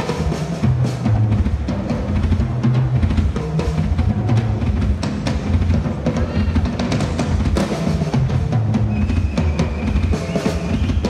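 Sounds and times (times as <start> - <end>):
drum kit solo: 0.0 - 11.0.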